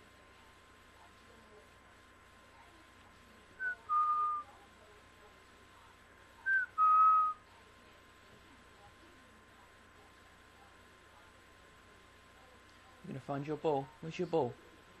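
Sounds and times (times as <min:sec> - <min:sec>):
person whistling to call dog: 0:03.6 - 0:04.5, 0:06.5 - 0:07.4.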